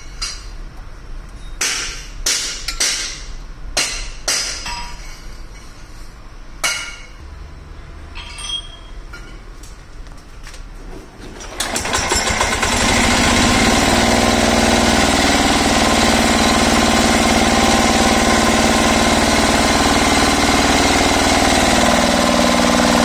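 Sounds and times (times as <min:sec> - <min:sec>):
diesel engine idling: 0:11.6 - 0:23.0.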